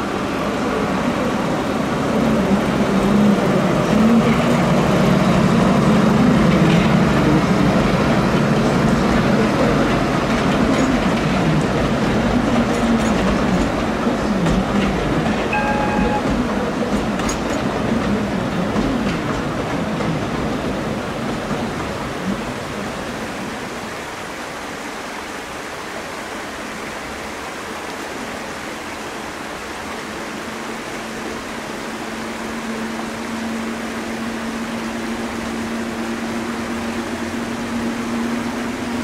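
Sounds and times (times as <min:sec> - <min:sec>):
train rumbling and rattling: 0:00.0 - 0:39.0
brief high tone: 0:15.5 - 0:16.4.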